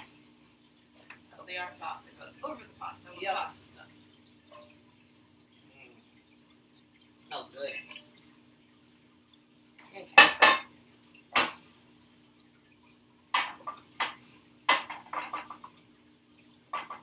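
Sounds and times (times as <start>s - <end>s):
faint steady hum: 0.0s - 17.0s
metal pans clanking on stove: 10.2s - 10.7s, 13.3s - 15.8s, 16.7s - 17.0s.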